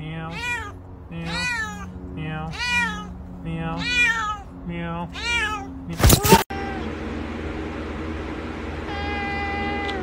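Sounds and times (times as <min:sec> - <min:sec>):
cat meowing: 0:00.3 - 0:04.5, 0:05.1 - 0:06.9.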